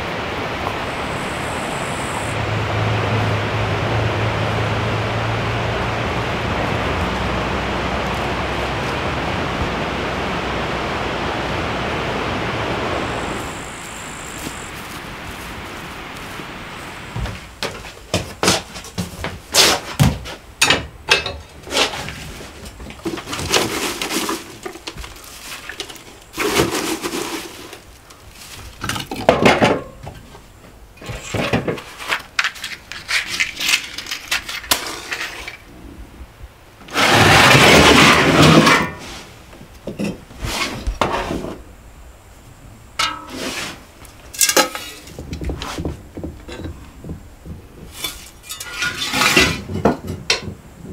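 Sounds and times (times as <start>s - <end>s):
firewood knocking and clattering: 28.8s - 30.3s, 44.1s - 50.9s
shovel scraping ash in metal bucket: 31.2s - 35.6s, 43.0s - 45.8s, 47.9s - 49.7s
loud rushing scrape: 36.9s - 39.4s.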